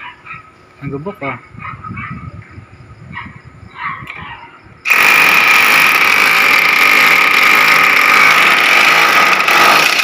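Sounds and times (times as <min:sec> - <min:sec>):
electric power tool running: 0:04.9 - 0:10.0.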